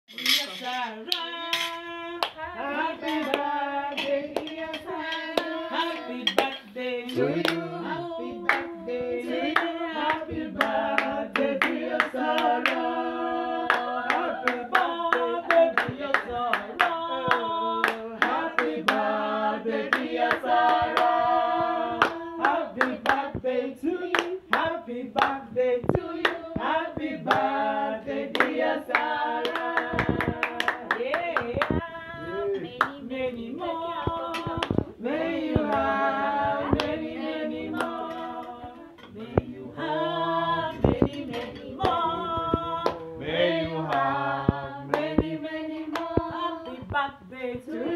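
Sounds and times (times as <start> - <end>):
group singing together: 0.5 - 47.9
people clapping in rhythm: 1.1 - 47.9.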